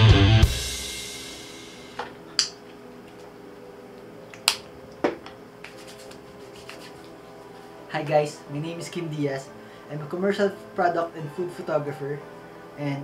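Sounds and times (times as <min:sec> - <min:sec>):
guitar music: 0:00.0 - 0:03.3
background music of held tones: 0:00.0 - 0:13.0.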